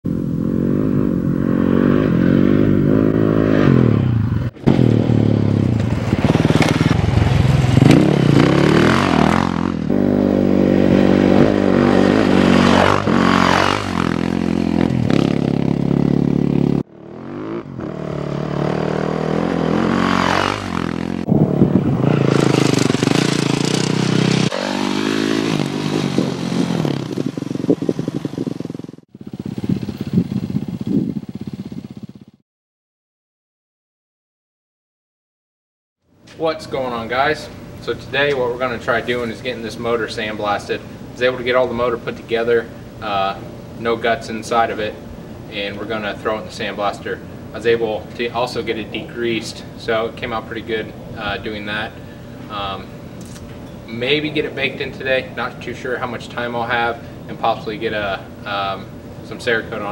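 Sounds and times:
dirt bike engine revving: 0:00.1 - 0:32.4.

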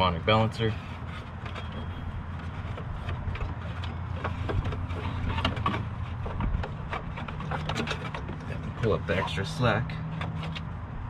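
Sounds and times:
belt clicking and knocking: 0:01.4 - 0:08.9.

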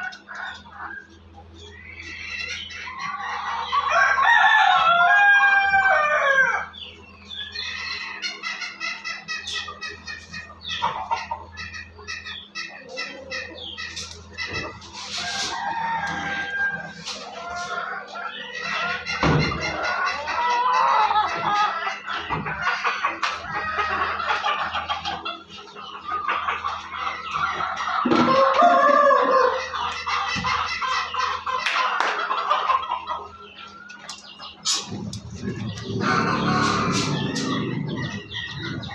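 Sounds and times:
chickens clucking: 0:00.0 - 0:38.9
low rushing noise: 0:34.9 - 0:38.9.

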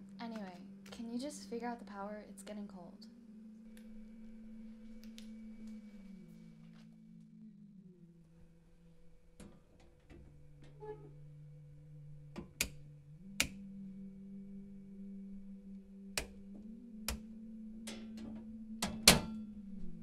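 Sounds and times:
low steady droning tone: 0:00.0 - 0:20.0
circuit breakers clicking: 0:12.1 - 0:13.7, 0:15.7 - 0:19.5.

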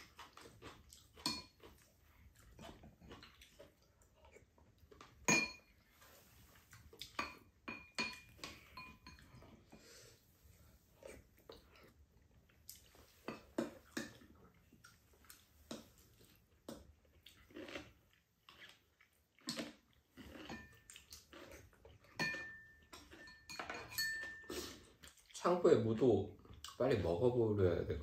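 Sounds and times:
people chewing: 0:00.0 - 0:27.1
spoons clinking against bowls: 0:01.2 - 0:01.6, 0:05.2 - 0:05.8, 0:07.1 - 0:09.4, 0:20.4 - 0:20.9, 0:22.1 - 0:24.7.

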